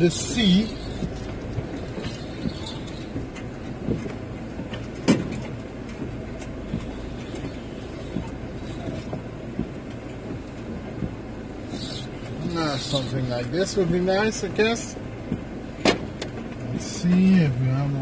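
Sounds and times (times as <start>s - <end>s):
engine and road rumble: 0.0s - 18.0s
clicks and knocks in van: 0.7s - 11.2s, 15.2s - 17.3s.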